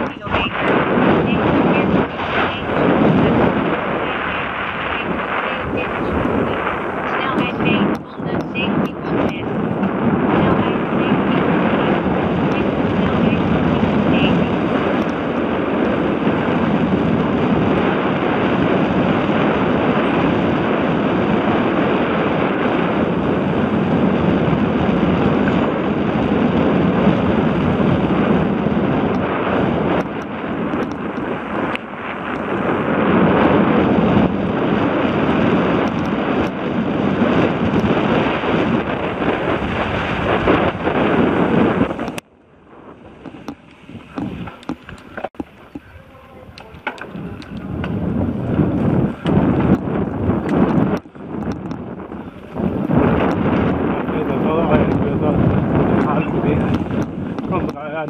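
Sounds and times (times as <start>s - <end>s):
wind rush on microphone: 0.0s - 58.0s
bike knocks and rattles: 46.6s - 53.8s.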